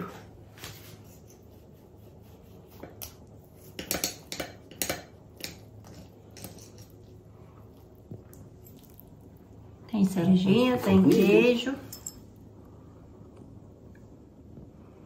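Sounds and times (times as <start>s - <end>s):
cutlery scraping a plate: 2.7s - 7.0s.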